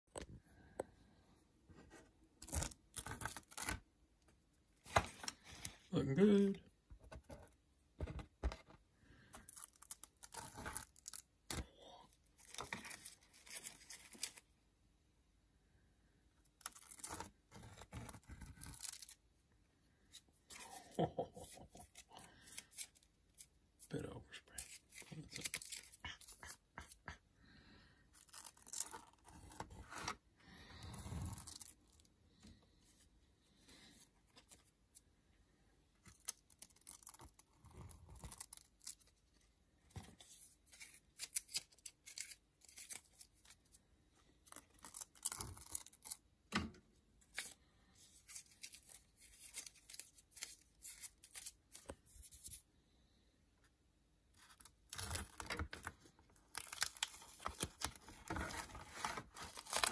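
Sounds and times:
masking paper crinkling: 12.3s - 14.5s, 20.1s - 27.0s, 28.1s - 32.4s, 47.3s - 52.6s, 54.4s - 59.9s.

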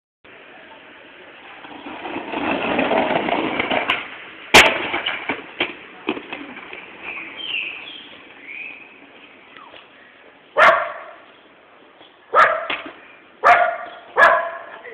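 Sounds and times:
skateboard wheels rolling on paving: 0.3s - 14.9s
skateboard cracking on ground: 1.4s - 9.9s, 12.4s - 14.0s
skateboard clattering and bouncing: 1.6s - 8.2s.

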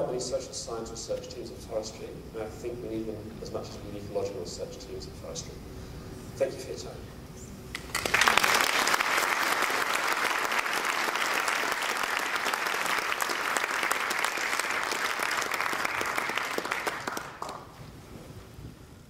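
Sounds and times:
audience applauding: 7.7s - 17.8s.

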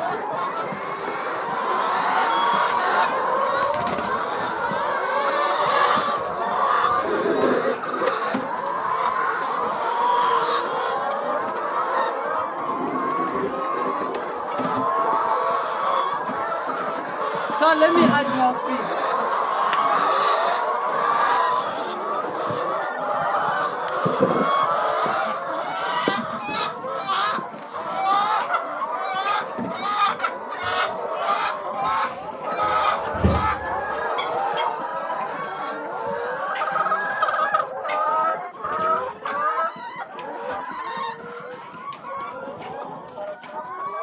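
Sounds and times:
hens clucking: 0.0s - 44.0s
dull thump: 33.1s - 33.6s.

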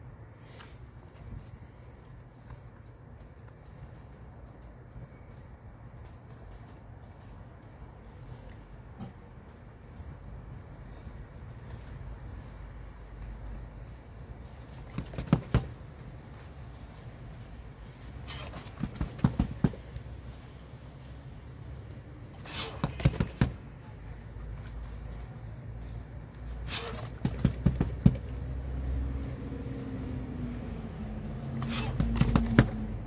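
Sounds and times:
fists striking punching bag: 22.5s - 23.6s, 31.7s - 32.9s.

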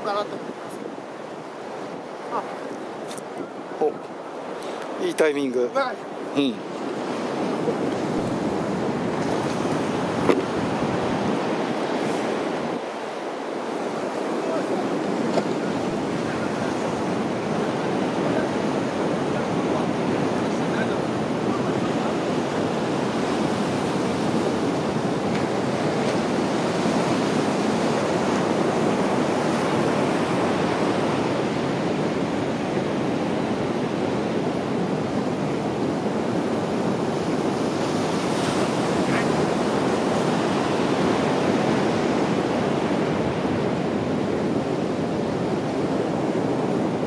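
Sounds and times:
ocean surf breaking: 0.0s - 47.0s.

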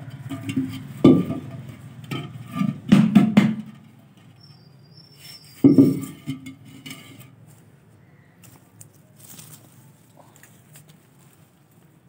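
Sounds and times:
pot knocking on concrete: 0.0s - 3.8s, 5.6s - 6.6s
pot scraping on concrete: 0.0s - 4.5s, 5.1s - 7.4s.

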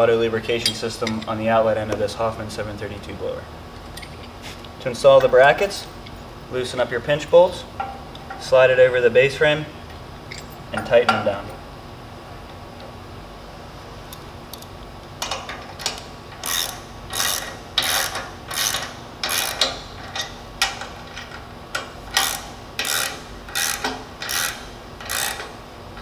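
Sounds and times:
ratchet wrench clicking: 14.1s - 26.0s.

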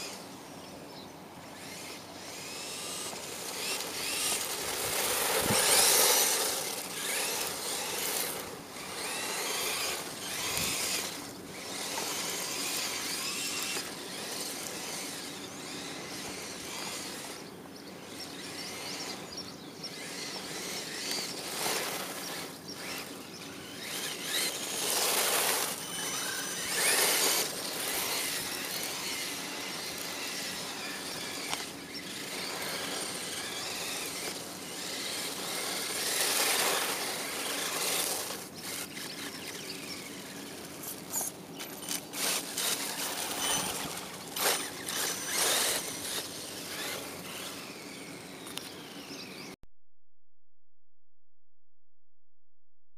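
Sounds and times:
electric motor whining: 1.5s - 49.0s
tyres spraying dirt: 2.4s - 17.2s, 20.4s - 47.8s.

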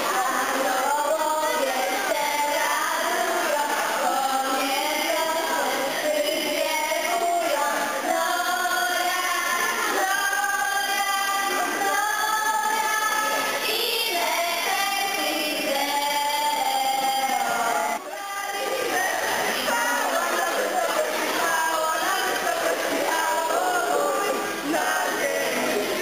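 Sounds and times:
girls singing together: 0.0s - 26.0s.

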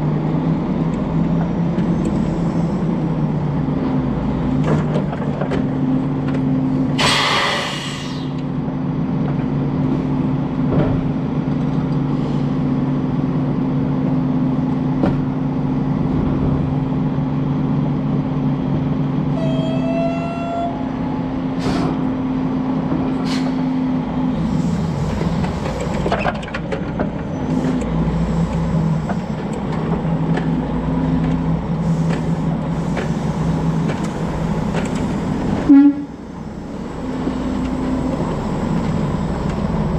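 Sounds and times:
diesel truck engine humming: 0.0s - 39.9s
air brake hiss: 7.0s - 8.4s, 21.6s - 22.0s, 23.2s - 23.7s.

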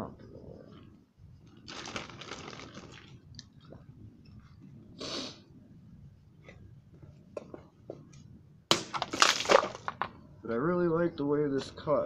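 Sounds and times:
person breathing out sharply: 5.0s - 5.4s.

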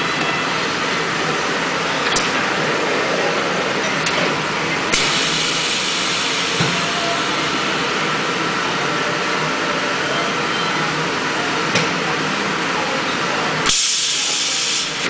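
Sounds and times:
machine running: 0.0s - 13.0s
machine hiss: 4.9s - 7.9s.

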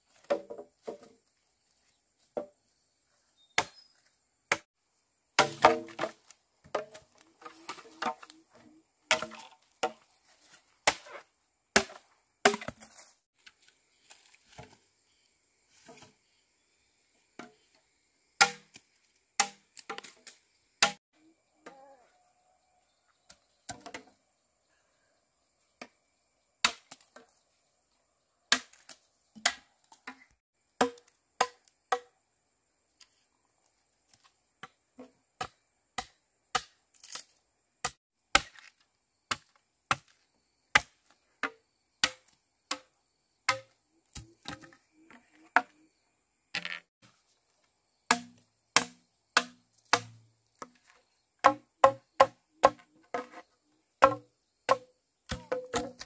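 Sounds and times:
chopping strikes with hollow knock: 3.6s - 3.9s, 4.5s - 4.7s, 5.4s - 8.3s, 9.1s - 10.1s, 11.8s - 13.0s, 18.4s - 18.8s, 19.4s - 21.0s, 26.6s - 27.2s, 30.8s - 32.1s, 37.8s - 42.9s, 43.5s - 44.8s, 48.1s - 50.8s, 51.4s - 53.4s, 54.0s - 56.0s.

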